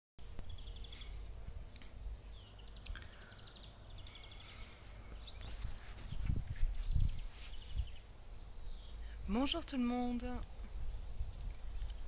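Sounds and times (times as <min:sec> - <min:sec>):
small birds chirping: 0:00.2 - 0:12.0.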